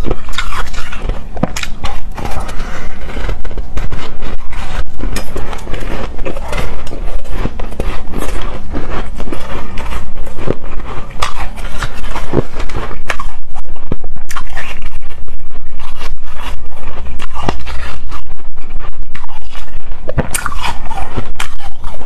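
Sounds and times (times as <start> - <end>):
chewing crunchy shaved ice: 0.0 - 13.3, 19.2 - 22.0.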